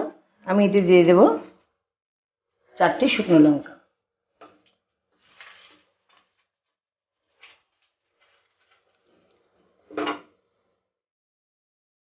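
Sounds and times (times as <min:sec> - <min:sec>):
spatula scraping a pan: 0:05.2 - 0:06.4, 0:07.3 - 0:10.7.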